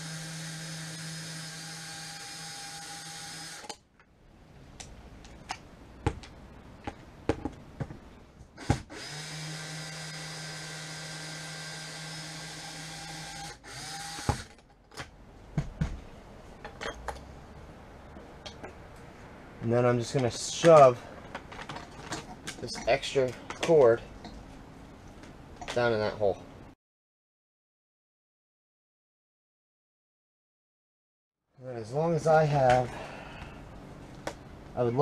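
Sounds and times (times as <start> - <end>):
cordless drill running: 0.0 - 3.8, 8.6 - 14.5.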